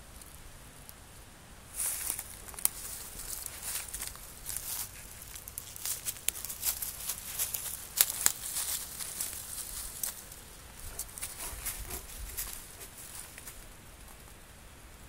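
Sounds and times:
footsteps crunching through dry leaves: 1.8s - 13.7s.

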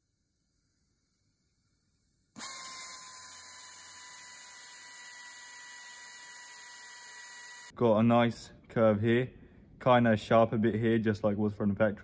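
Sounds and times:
die grinder whining: 2.3s - 7.7s.

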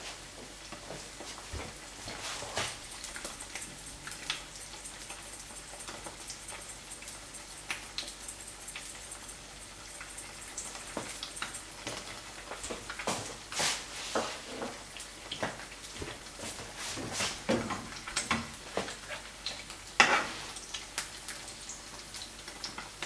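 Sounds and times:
eggs sizzling in oil: 0.0s - 23.0s
oil popping and crackling: 0.7s - 23.0s.

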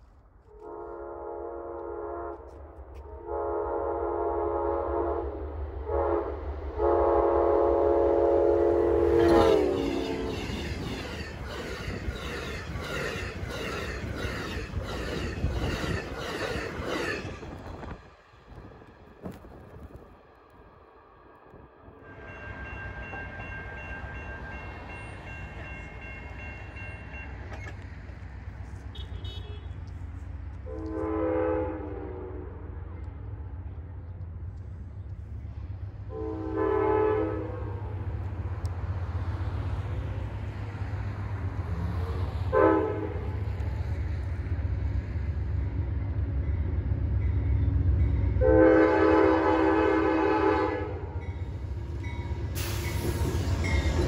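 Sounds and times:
low train rumble: 0.0s - 54.0s
train horn blasts: 0.5s - 11.2s, 28.8s - 29.9s, 30.6s - 32.9s, 36.1s - 38.2s, 42.1s - 43.4s, 48.2s - 54.0s
crossing signal bells ringing: 22.0s - 27.7s, 51.1s - 54.0s.

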